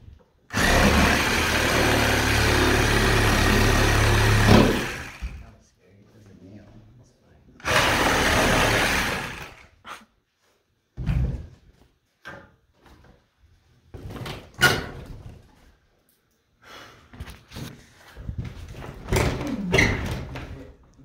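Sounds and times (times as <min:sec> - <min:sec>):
power tool cutting boards: 0:00.5 - 0:05.4, 0:07.6 - 0:09.7.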